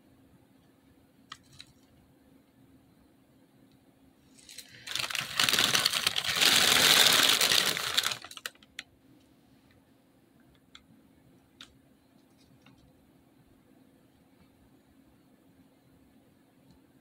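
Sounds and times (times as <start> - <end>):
cereal rattling out of a box: 4.4 - 8.6.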